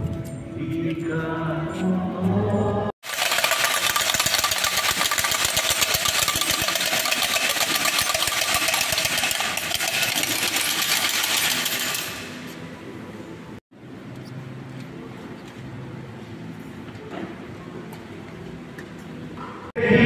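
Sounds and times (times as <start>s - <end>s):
wooden clapper rattle clattering: 3.1s - 12.5s.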